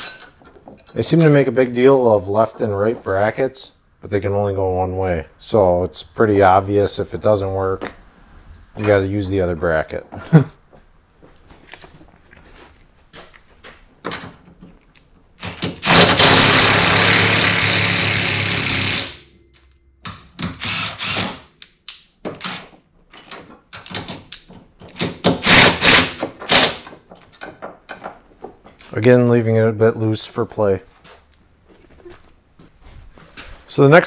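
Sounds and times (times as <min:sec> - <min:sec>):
impact driver running bolts: 0:15.5 - 0:19.2, 0:20.4 - 0:21.5, 0:25.0 - 0:26.9.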